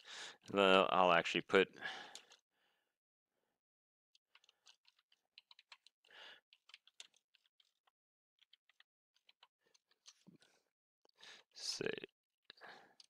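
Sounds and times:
typing on computer keyboard: 0:04.2 - 0:10.3.

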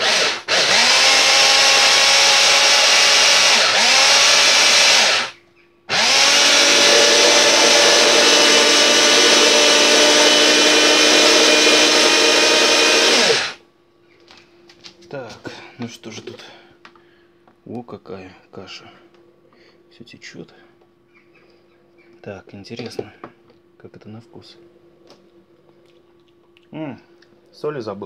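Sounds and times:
electric mini chopper running: 0:00.0 - 0:13.6.

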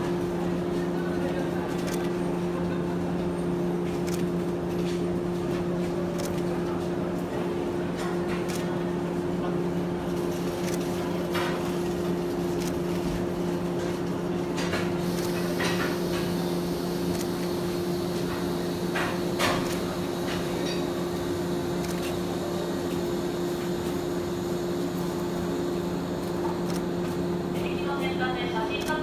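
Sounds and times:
electric train humming: 0:11.8 - 0:29.0.

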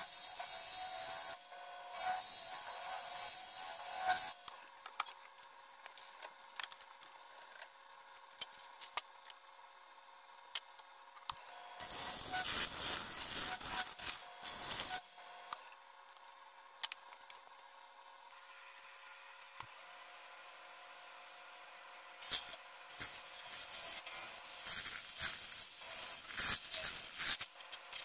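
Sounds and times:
lathe motor whine: 0:11.5 - 0:15.6
tool scraping spinning wood: 0:11.8 - 0:15.0.

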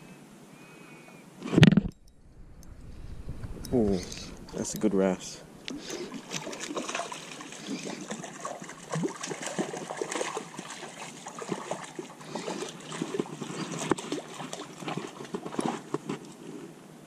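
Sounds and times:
water splashing and trickling: 0:03.7 - 0:16.4.

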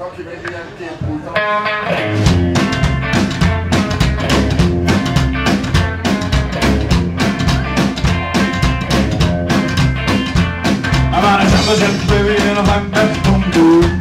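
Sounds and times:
electric guitar: 0:01.2 - 0:14.0
drum kit beat: 0:01.9 - 0:14.0
plucked double bass: 0:02.0 - 0:14.0.

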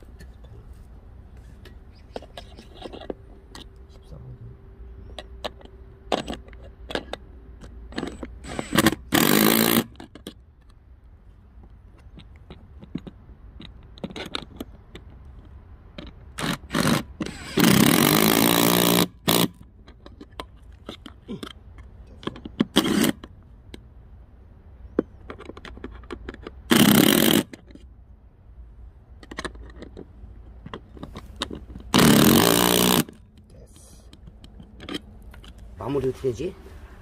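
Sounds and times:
small clicks and knocks: 0:05.0 - 0:09.0, 0:09.9 - 0:16.6, 0:19.3 - 0:23.9, 0:24.8 - 0:26.7, 0:29.0 - 0:32.1, 0:33.0 - 0:35.8.

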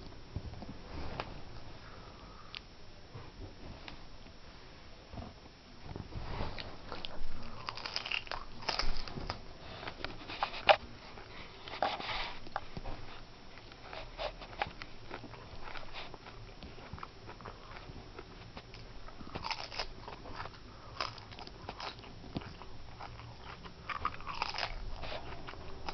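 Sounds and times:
tortoise crunching cabbage leaf: 0:07.0 - 0:10.9, 0:13.7 - 0:25.9.

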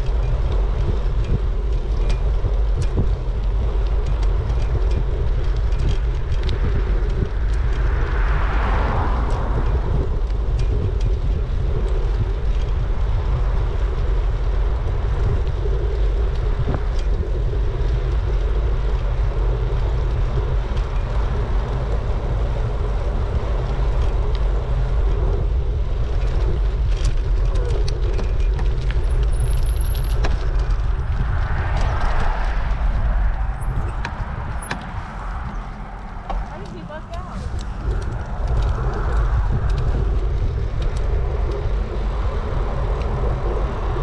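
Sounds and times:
road and tyre noise: 0:00.0 - 0:44.0
wind buffeting microphone: 0:00.0 - 0:44.0.

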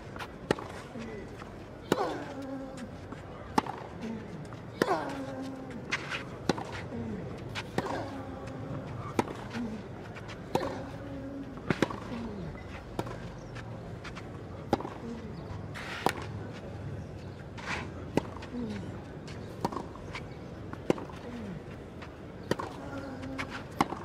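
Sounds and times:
racket striking ball: 0:22.4 - 0:22.8.

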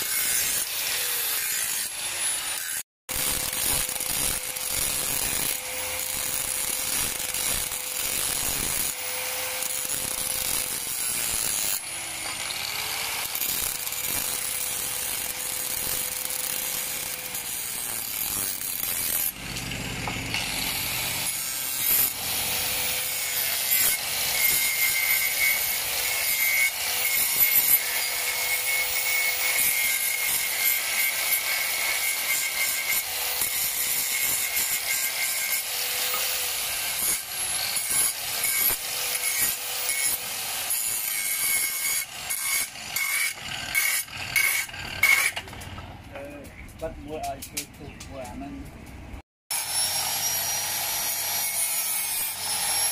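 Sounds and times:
angle grinder cutting steel: 0:00.0 - 0:45.9, 0:49.5 - 0:52.9.

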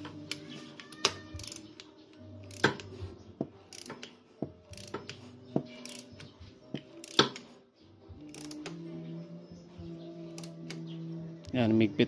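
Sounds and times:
torque wrench ratchet clicking: 0:01.0 - 0:02.9, 0:03.7 - 0:04.1, 0:04.7 - 0:05.2, 0:05.8 - 0:06.2, 0:07.0 - 0:07.4, 0:08.3 - 0:08.7.

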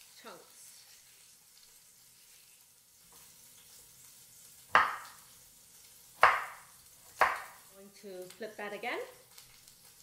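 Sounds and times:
meat searing sizzle: 0:00.0 - 0:10.0
knife chopping on cutting board: 0:04.7 - 0:05.2, 0:06.2 - 0:07.6.

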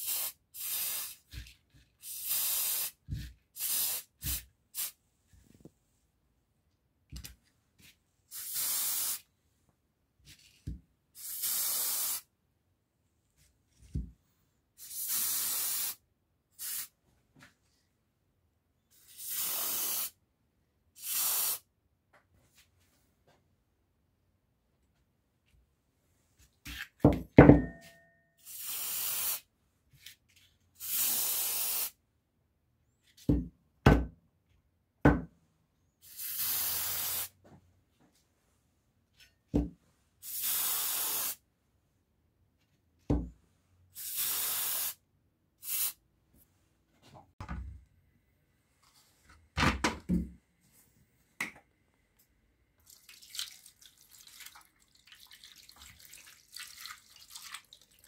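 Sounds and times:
spray paint can hissing: 0:00.0 - 0:01.2, 0:02.0 - 0:03.0, 0:03.6 - 0:05.0, 0:08.3 - 0:09.2, 0:11.2 - 0:12.3, 0:14.8 - 0:16.0, 0:16.6 - 0:16.9, 0:19.0 - 0:20.2, 0:21.0 - 0:21.6, 0:28.4 - 0:29.4, 0:30.8 - 0:32.0, 0:36.0 - 0:37.3, 0:40.2 - 0:41.4, 0:44.0 - 0:45.0, 0:45.6 - 0:46.0
water splashing into metal tray: 0:52.9 - 0:58.0.

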